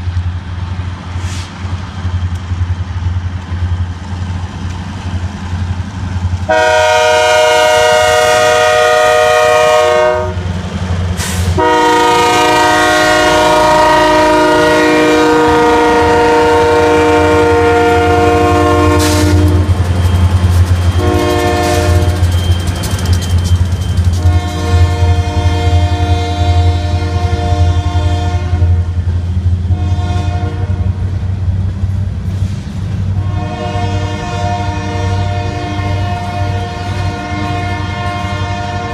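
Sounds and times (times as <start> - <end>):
diesel engines droning: 0.0 - 38.9
train air horn blasts: 6.5 - 10.4, 11.2 - 19.8, 20.9 - 22.3, 24.2 - 28.8, 29.7 - 30.9, 33.2 - 38.9
train wheels clattering on rails: 10.4 - 12.2, 17.8 - 28.0.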